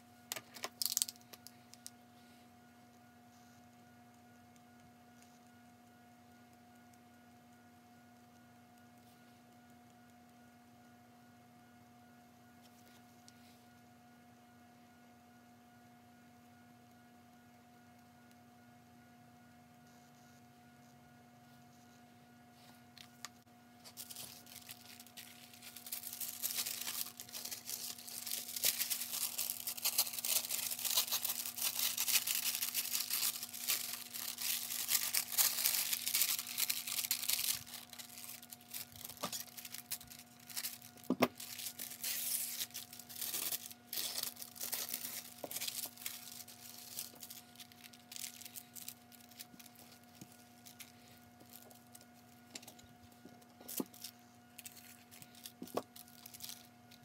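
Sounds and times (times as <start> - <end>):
paper crinkling and rustling: 0.3 - 1.6, 22.6 - 57.0.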